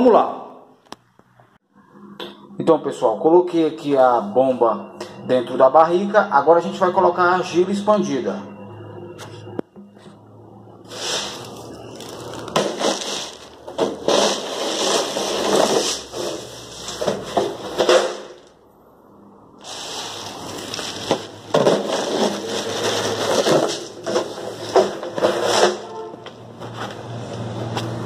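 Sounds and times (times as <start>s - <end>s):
clay pebbles poured into plastic barrel: 10.9s - 17.4s, 19.6s - 25.6s.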